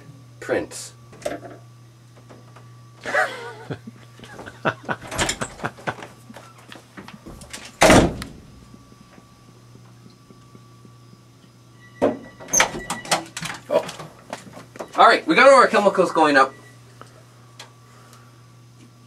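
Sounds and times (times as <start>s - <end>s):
low electrical hum: 0.0s - 19.0s
door clicks and knocks: 5.0s - 5.6s
door slamming shut: 5.0s - 5.6s, 7.3s - 8.5s.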